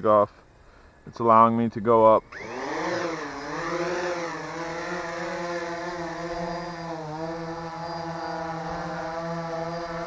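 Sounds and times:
drone propellers whirring: 2.2s - 10.0s.

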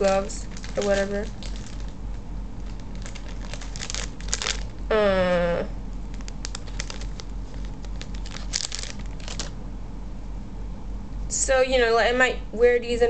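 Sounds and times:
plastic bag crinkling: 0.0s - 4.9s, 6.0s - 9.6s.

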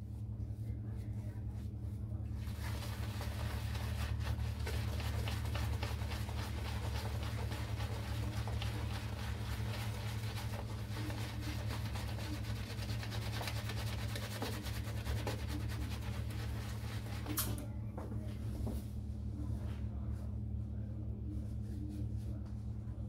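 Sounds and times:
shaving brush swishing through lather: 2.4s - 17.4s.

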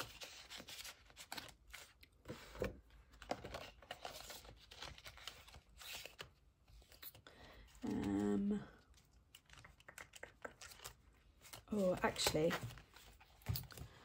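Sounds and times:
small clicks and taps: 9.3s - 11.0s
plastic pockets and banknotes rustling: 10.6s - 14.0s.

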